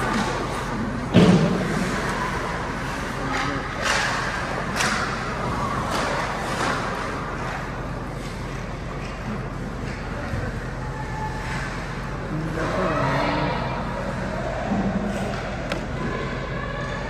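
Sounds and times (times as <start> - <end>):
skates scraping ice: 0.0 - 10.4
arena hum: 0.0 - 17.0.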